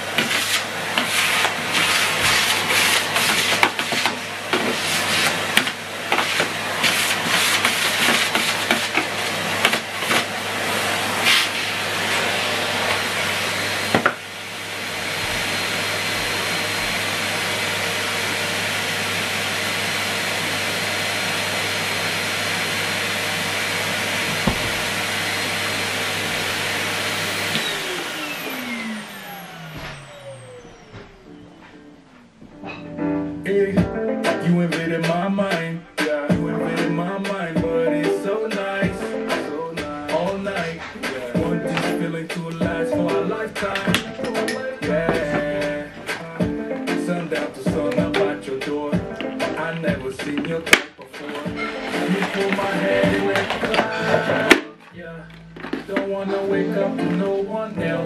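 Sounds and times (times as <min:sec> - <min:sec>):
vacuum cleaner running: 0:00.0 - 0:32.8, 0:33.5 - 0:58.0
vacuum motor spinning down: 0:08.5 - 0:31.7
floor tool clicking and rattling: 0:47.7 - 0:56.2.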